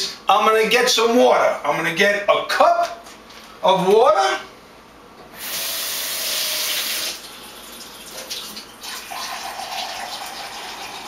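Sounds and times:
kitchen tap running: 5.4s - 11.0s
water filling a cup: 5.4s - 11.0s.

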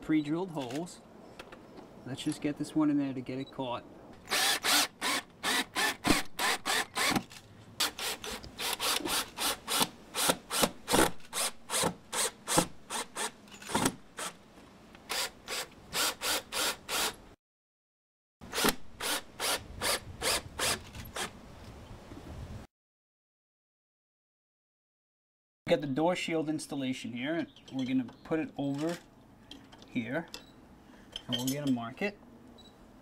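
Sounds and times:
cordless drill driving screws: 4.2s - 14.4s, 15.1s - 17.2s.

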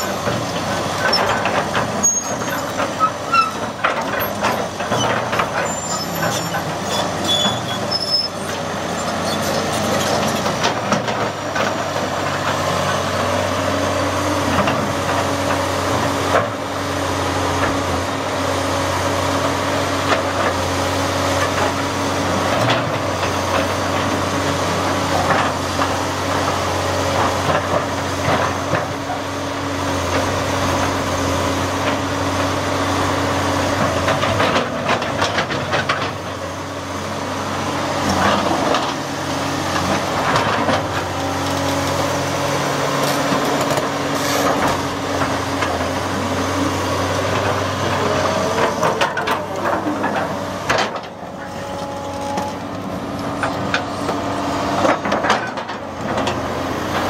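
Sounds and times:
excavator diesel engine under load: 0.0s - 57.0s
hydraulic whine: 39.8s - 55.2s.

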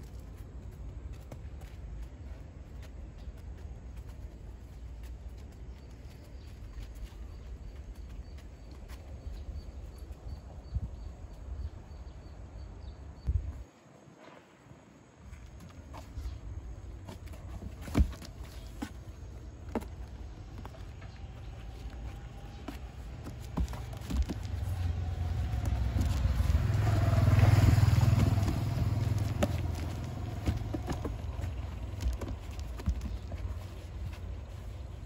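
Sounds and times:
vehicle passing by: 24.3s - 33.0s.

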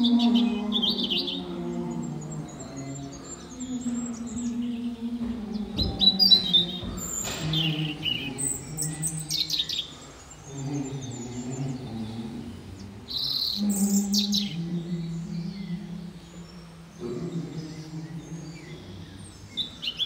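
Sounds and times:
birds chirping: 0.0s - 20.0s
knocks: 5.1s - 9.2s.

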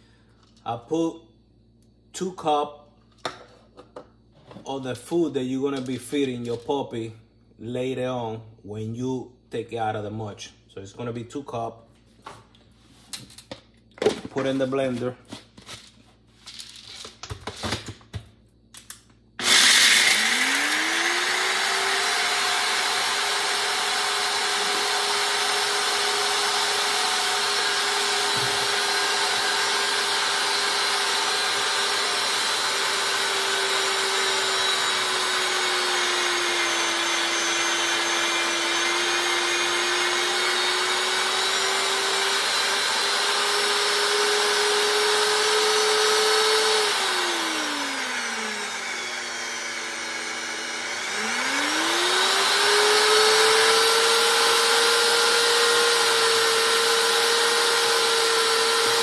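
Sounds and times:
blender motor whining: 19.4s - 59.0s.

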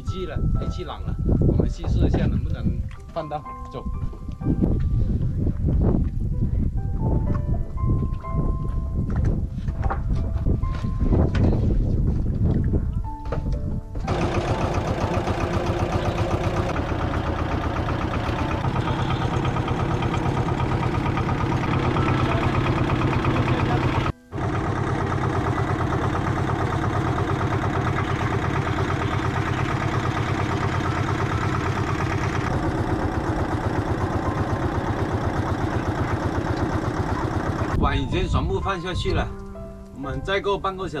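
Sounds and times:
boat diesel engine chugging: 14.0s - 39.7s.

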